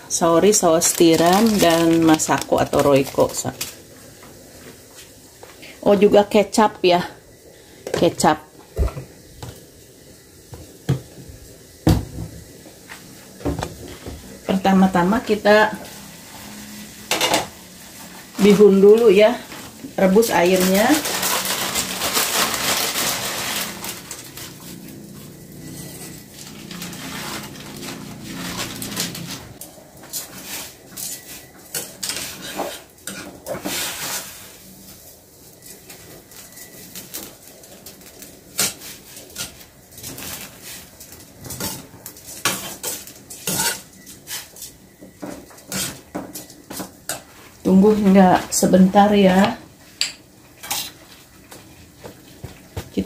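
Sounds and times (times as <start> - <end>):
steady hiss: 0.0 - 41.4.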